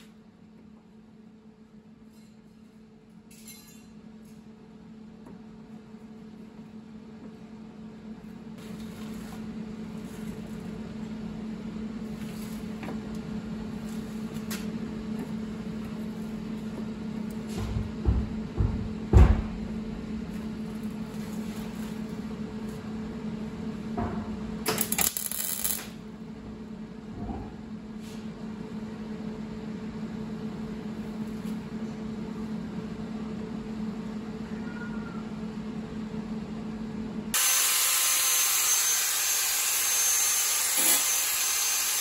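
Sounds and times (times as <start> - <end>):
steady low hum: 0.0 - 37.4
knocks on metal panel: 17.6 - 19.6
welder crackling: 24.8 - 25.9, 37.4 - 42.0.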